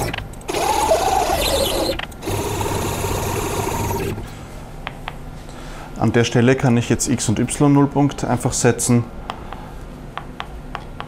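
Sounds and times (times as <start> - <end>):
milling machine motor whine: 0.0 - 4.3.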